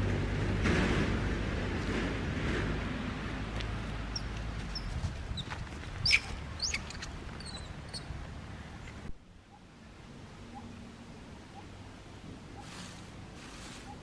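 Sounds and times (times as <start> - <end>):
low background rumble: 0.0 - 14.0
small birds chirping: 4.1 - 11.8, 12.4 - 14.0.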